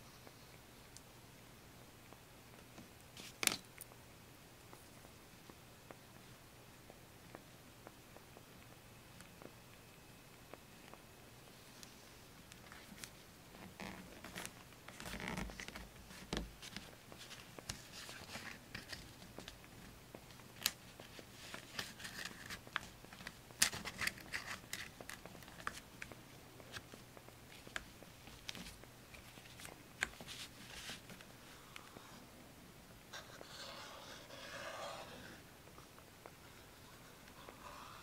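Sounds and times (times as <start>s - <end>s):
paper rustling and scraping: 29.6s - 31.2s.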